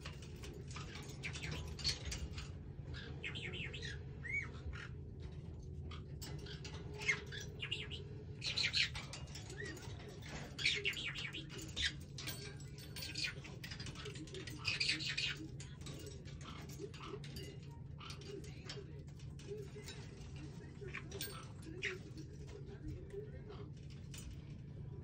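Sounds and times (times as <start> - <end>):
steady low hum: 0.0 - 25.0
parrot chirps and squawks: 0.7 - 18.4.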